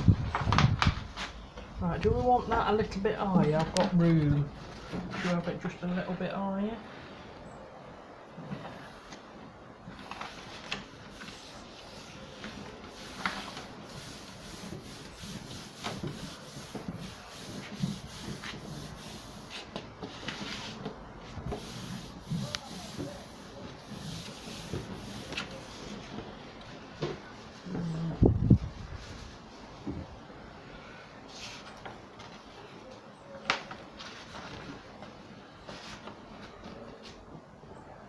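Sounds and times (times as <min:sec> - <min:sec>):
small paper crackles: 0:09.9 - 0:11.6
paper rubbing and rustling: 0:09.9 - 0:26.4, 0:33.5 - 0:35.0.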